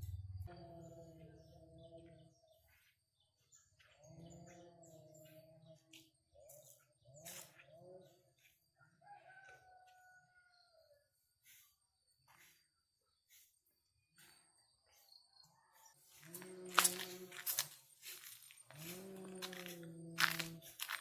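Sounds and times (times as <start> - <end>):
small birds chirping: 0.0 - 21.0
faint chickens calling: 15.5 - 21.0.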